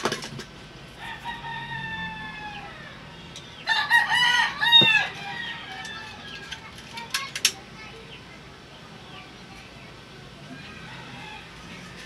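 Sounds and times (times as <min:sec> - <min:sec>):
rooster crowing: 0:01.0 - 0:06.4, 0:10.6 - 0:12.0.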